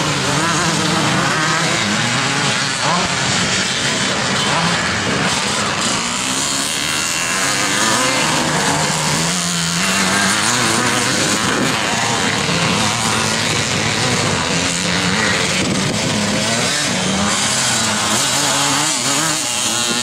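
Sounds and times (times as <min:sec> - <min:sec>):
motocross bike engines revving: 0:00.0 - 0:20.0.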